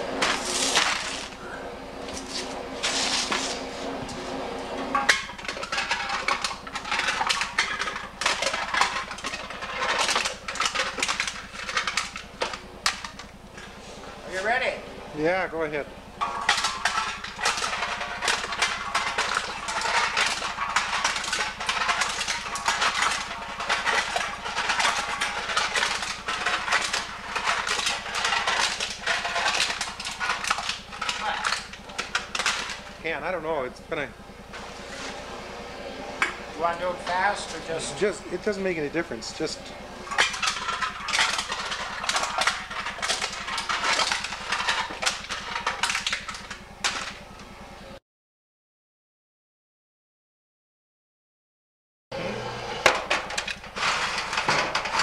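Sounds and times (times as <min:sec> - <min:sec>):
can crusher low hum: 0:00.0 - 0:14.3, 0:15.0 - 0:33.6, 0:34.2 - 0:47.6, 0:52.2 - 0:55.0
cans clattering and crushing: 0:05.0 - 0:13.8, 0:16.2 - 0:32.9, 0:37.2 - 0:47.3, 0:52.9 - 0:55.0.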